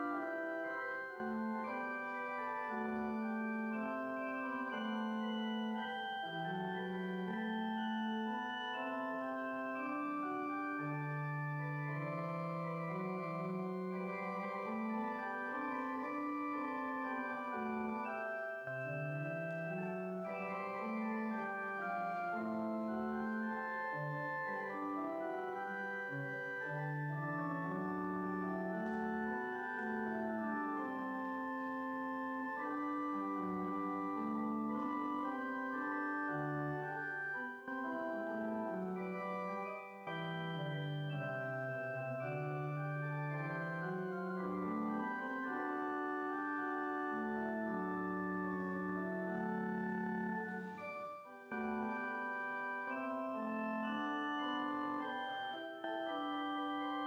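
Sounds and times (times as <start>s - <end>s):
church organ sustained chords: 0.0s - 57.0s.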